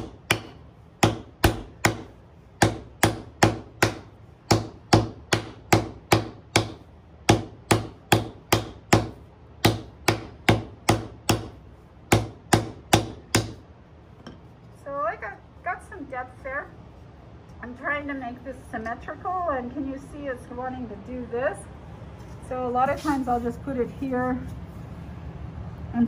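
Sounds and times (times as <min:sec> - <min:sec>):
mallet striking copper: 0:00.0 - 0:13.6.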